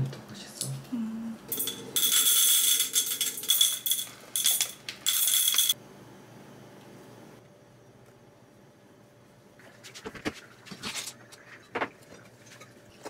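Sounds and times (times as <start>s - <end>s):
coffee beans rattling into container: 1.5s - 5.8s.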